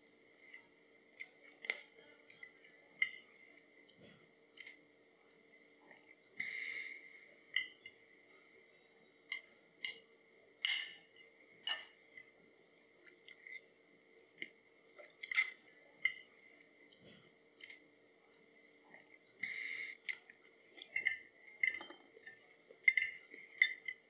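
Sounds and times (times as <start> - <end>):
faint steady hum: 0.0 - 24.0
fork clinking on a plate: 20.9 - 24.0.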